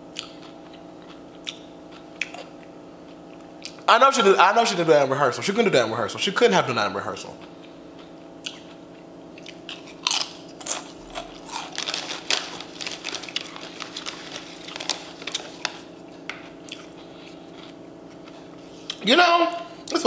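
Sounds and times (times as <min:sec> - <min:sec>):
faint hum: 0:00.0 - 0:20.0
chips crunching: 0:09.4 - 0:19.0
chip bag crinkling: 0:09.5 - 0:19.0.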